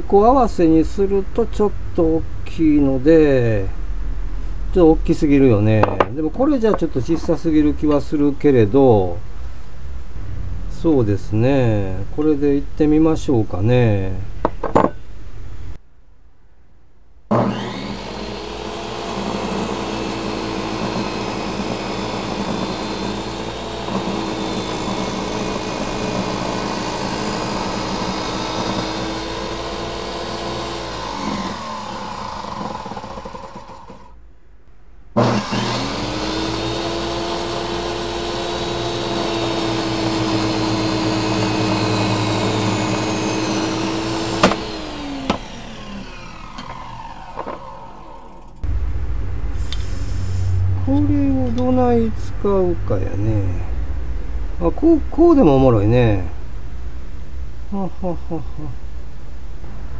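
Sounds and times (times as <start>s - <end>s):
table saw whining: 17.3s - 34.2s, 35.2s - 53.5s.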